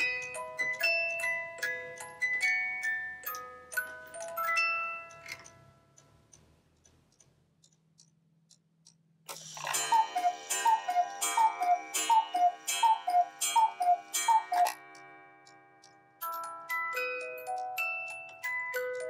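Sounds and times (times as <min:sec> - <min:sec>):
wooden click of clock mechanism: 0:05.1 - 0:16.6
cuckoo clock two-note call: 0:09.4 - 0:15.7.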